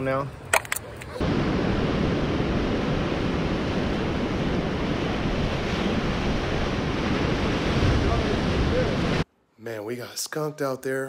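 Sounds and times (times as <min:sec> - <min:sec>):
wind buffeting microphone: 0:01.1 - 0:09.2
ocean surf: 0:01.1 - 0:09.3.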